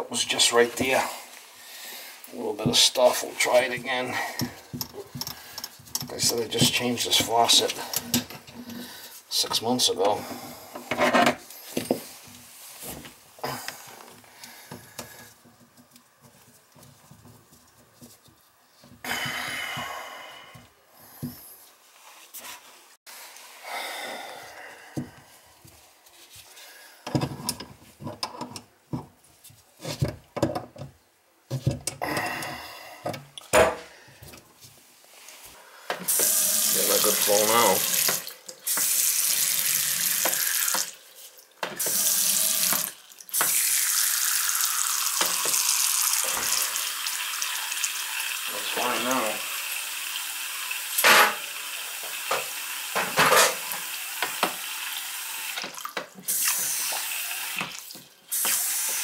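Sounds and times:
faucet running into basin: 36.1s - 41.2s, 41.8s - 59.0s.

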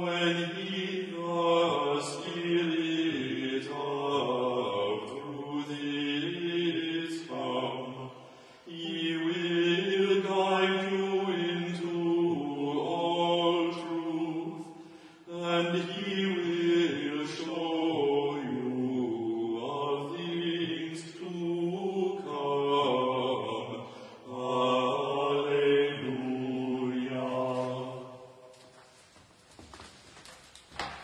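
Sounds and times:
men chanting together: 15.3s - 28.1s.

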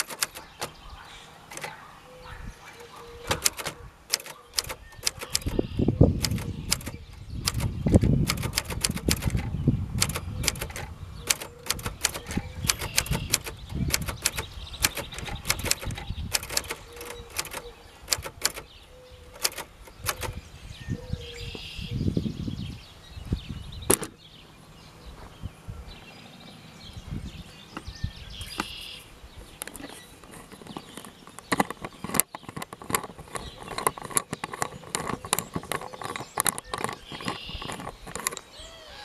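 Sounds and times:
typewriter keys clacking: 0.0s - 0.8s, 1.5s - 1.8s, 2.8s - 18.7s, 19.3s - 20.4s.

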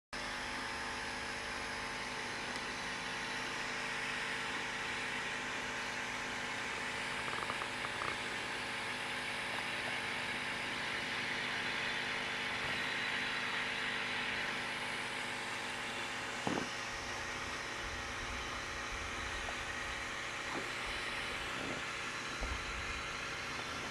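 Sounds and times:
mechanical hum with hiss: 0.2s - 23.9s
brief knock: 16.4s - 16.7s.

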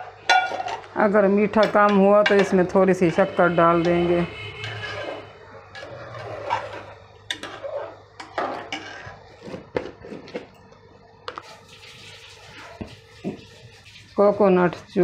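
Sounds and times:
metal spoon scraping a pot: 1.5s - 9.7s, 11.3s - 15.0s.

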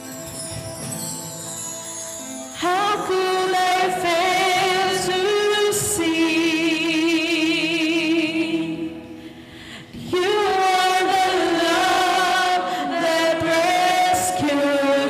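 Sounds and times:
woman singing worship song: 2.6s - 15.0s.

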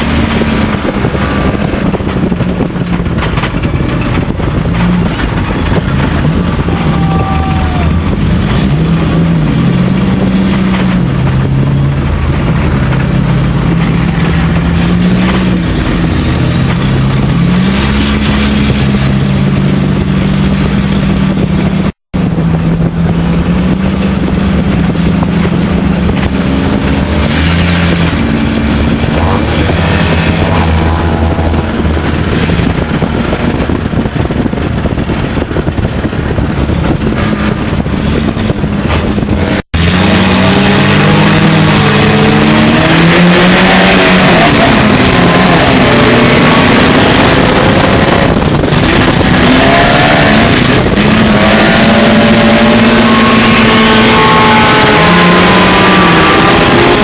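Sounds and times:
race car engine running hard: 0.0s - 57.0s.

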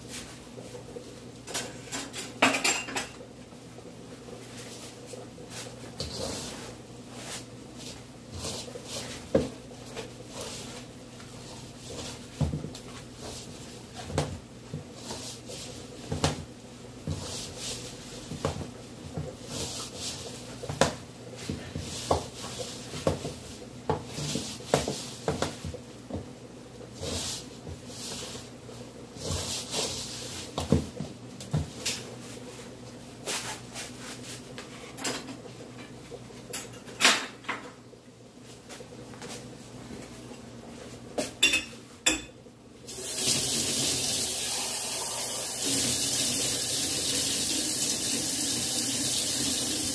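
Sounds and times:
dough rubbing swishes: 4.4s - 14.1s, 14.8s - 16.2s, 17.0s - 20.7s, 26.9s - 30.7s.

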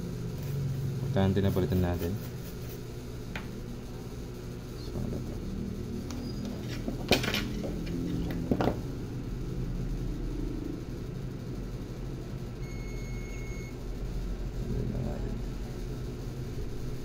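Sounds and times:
low electrical hum: 0.0s - 17.0s
short high-pitched beep: 12.6s - 13.8s.

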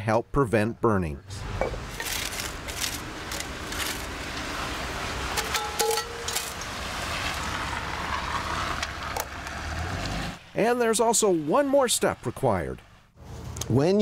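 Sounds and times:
outdoor background rumble: 1.3s - 10.6s.

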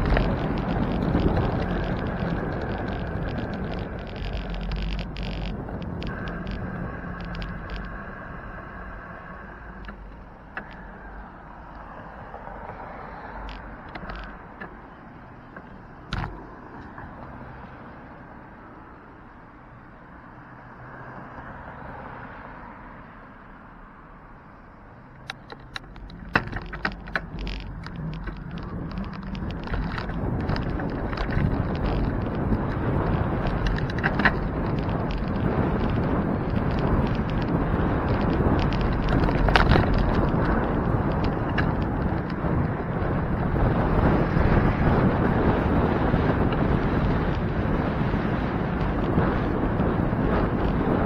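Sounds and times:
sharp clicks and rattles: 0.0s - 17.4s, 25.1s - 51.0s
wind buffeting microphone: 0.0s - 18.7s, 25.3s - 51.0s
car engine and tyre noise: 0.0s - 51.0s
camera mount clicks and rattles: 13.4s - 14.8s, 15.6s - 17.0s, 25.2s - 42.8s.

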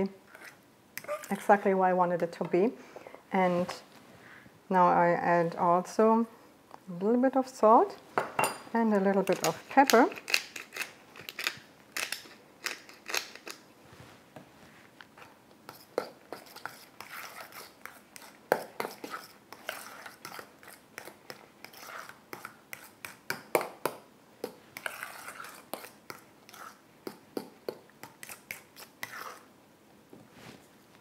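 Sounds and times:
spoon scraping metal bowl: 0.3s - 1.6s, 15.7s - 23.2s, 24.4s - 27.2s, 28.0s - 29.5s
pepper mill grinding: 9.3s - 13.6s.

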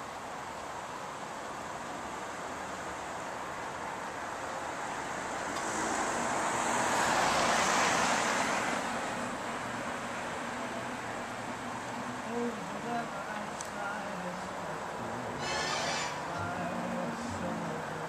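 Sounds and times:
car passing by: 3.8s - 12.3s, 14.4s - 18.0s.

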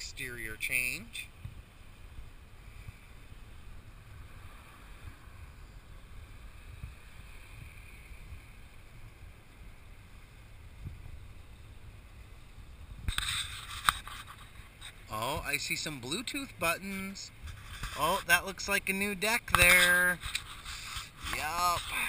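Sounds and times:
wind rumbling on microphone: 0.0s - 22.0s
rustling noise: 13.0s - 16.2s, 17.3s - 22.0s.

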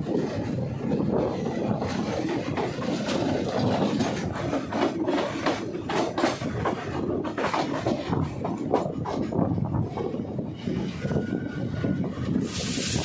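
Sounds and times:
train wheels on track: 0.0s - 13.0s.

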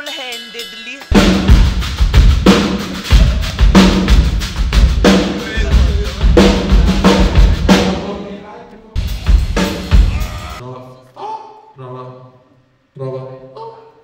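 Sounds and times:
kick drum: 1.1s - 7.7s.

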